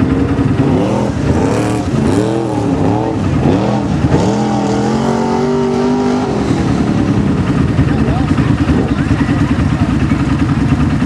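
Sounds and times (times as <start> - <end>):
vehicle pushing through muddy water: 0.0 - 10.2
atv engine revving: 0.0 - 11.0.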